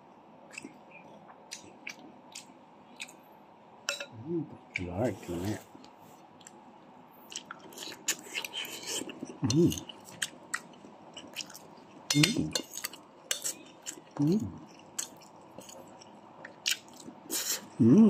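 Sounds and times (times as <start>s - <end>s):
chewing: 7.2s - 17.7s.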